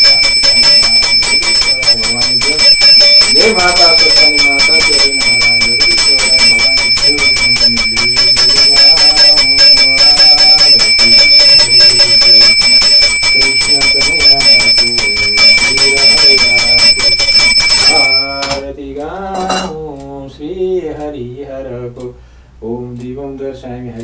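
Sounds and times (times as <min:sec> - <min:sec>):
hand bell ringing rapidly: 0:00.0 - 0:18.6.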